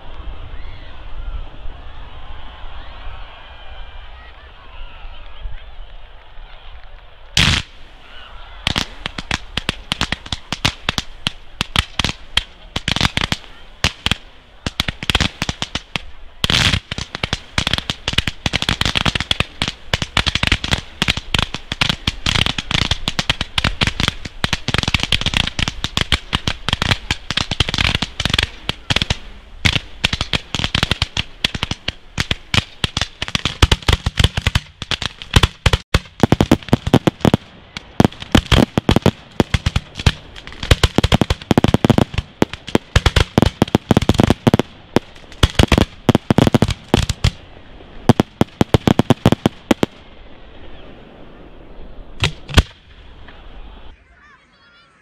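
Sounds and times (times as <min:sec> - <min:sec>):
fireworks bangs and pops: 0:07.4 - 0:07.8, 0:08.6 - 0:47.4, 0:48.0 - 0:50.0, 0:52.2 - 0:52.9.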